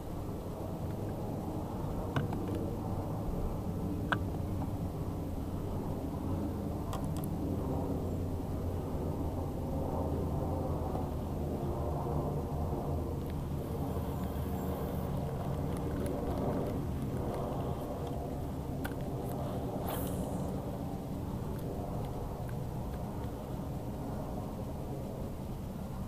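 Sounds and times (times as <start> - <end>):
boat motor humming: 13.6 - 18.1.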